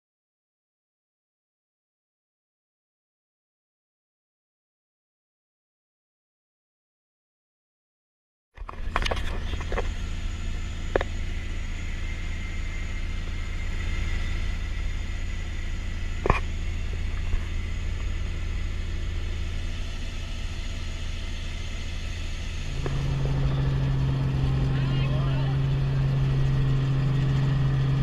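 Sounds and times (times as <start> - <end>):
helicopter engine and rotor drone: 8.6 - 28.0
loud steady hum: 8.6 - 28.0.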